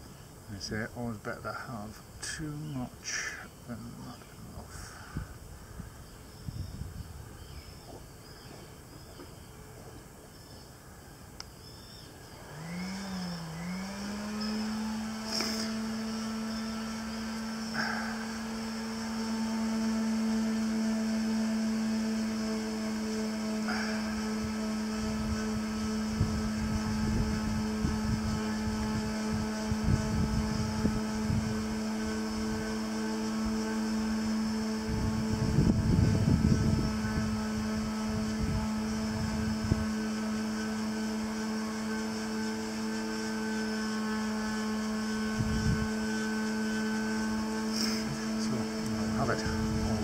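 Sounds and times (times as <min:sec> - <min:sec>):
motor humming: 0:00.0 - 0:50.0
low rumbling: 0:12.2 - 0:50.0.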